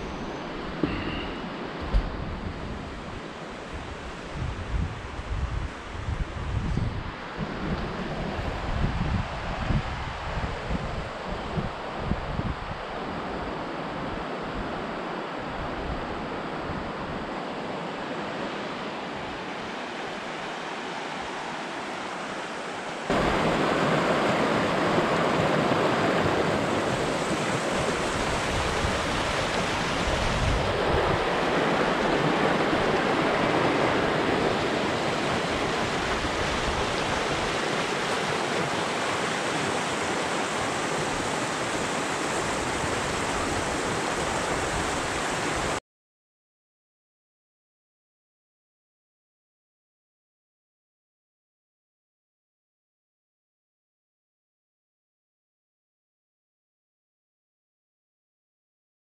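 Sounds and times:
river rushing over stones: 0:17.6 - 0:45.8.

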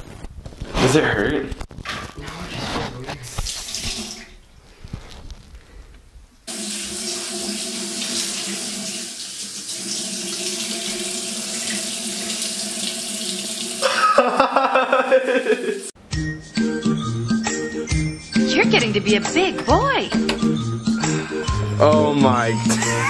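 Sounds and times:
tap water running: 0:03.3 - 0:04.4, 0:06.5 - 0:15.9, 0:19.3 - 0:20.6
tap turned on: 0:19.5 - 0:20.6.

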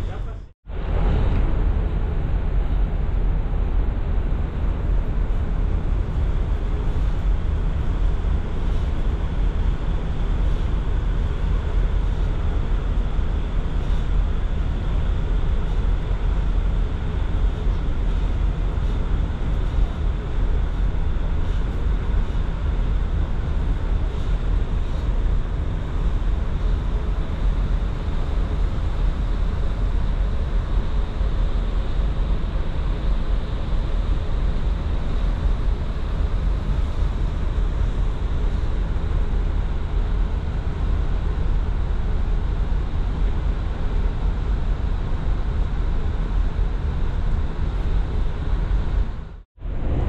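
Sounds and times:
ferry low rumble: 0:00.0 - 0:14.9, 0:47.7 - 0:50.0.

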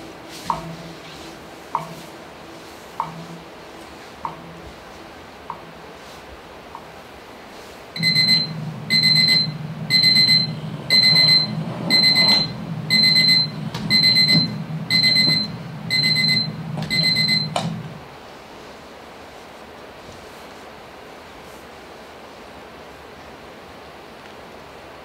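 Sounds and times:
alarm clock beeping: 0:08.0 - 0:17.6.

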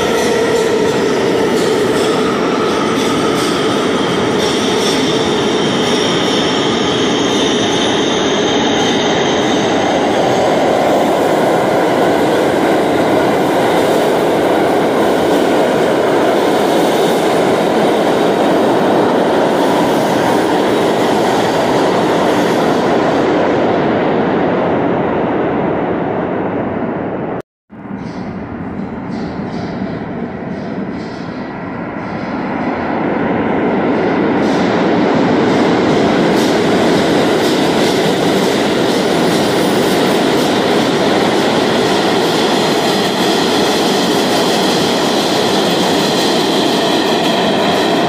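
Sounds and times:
high squealing wheels: 0:00.0 - 0:23.2
subway train rumble and clatter: 0:00.0 - 0:48.0.

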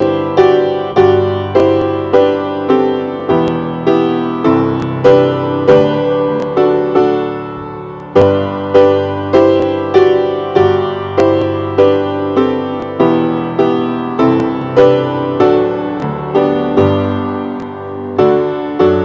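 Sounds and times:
slow piano chords: 0:00.0 - 0:19.0.

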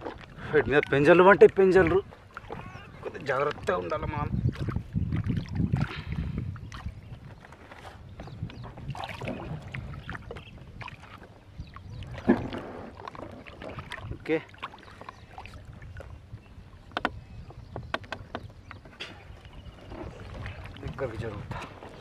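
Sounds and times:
water sloshing and splashing: 0:00.0 - 0:22.0
fishing line clicks and knocks: 0:16.9 - 0:17.2.

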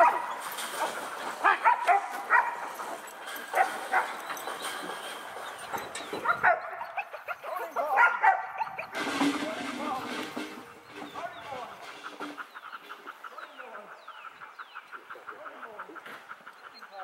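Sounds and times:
dog barking: 0:00.0 - 0:00.4, 0:01.4 - 0:02.7, 0:06.2 - 0:08.9.

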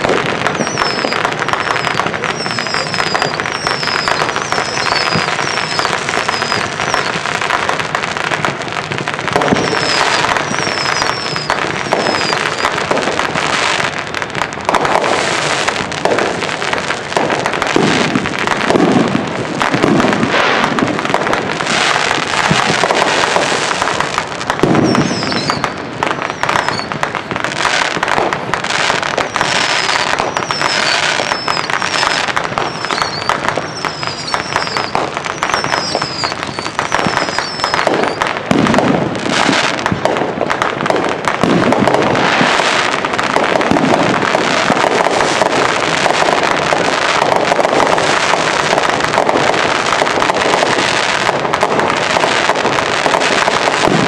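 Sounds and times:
falling fireworks whistles: 0:00.0 - 0:54.0
fireworks bangs and crackling: 0:00.0 - 0:54.0
heavy fireworks booms: 0:00.0 - 0:54.0.

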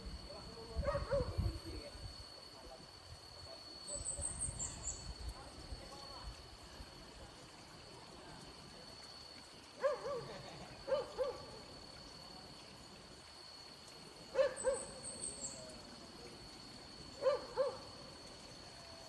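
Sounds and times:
dogs barking: 0:00.8 - 0:01.4, 0:09.8 - 0:11.6, 0:14.3 - 0:15.0, 0:17.2 - 0:17.9.

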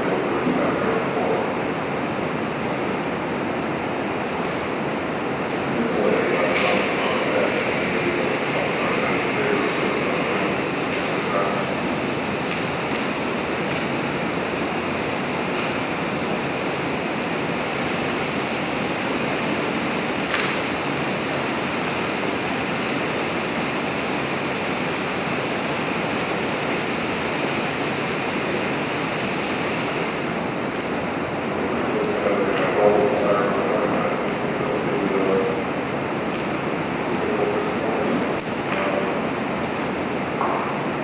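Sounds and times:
fire rushing: 0:05.1 - 0:30.7.

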